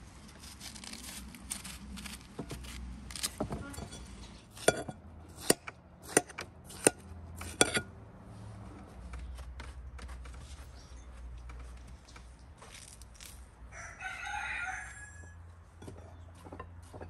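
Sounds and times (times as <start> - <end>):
knife cutting watermelon: 0.2 - 7.8.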